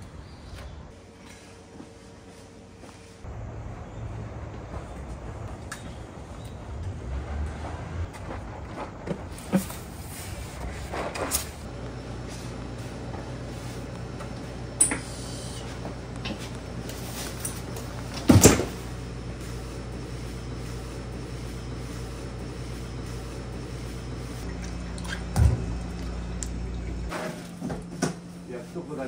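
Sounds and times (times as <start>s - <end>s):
kitchen machinery humming: 9.0s - 29.0s.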